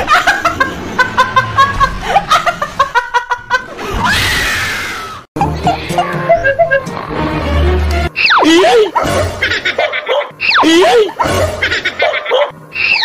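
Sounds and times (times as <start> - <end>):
woman laughing hysterically: 0.0 - 3.9, 5.5 - 6.9
music: 5.4 - 8.2.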